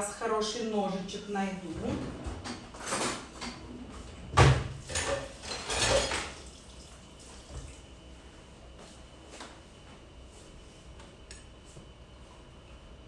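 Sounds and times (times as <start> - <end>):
kitchen utensils knocking and clattering: 4.8 - 6.4.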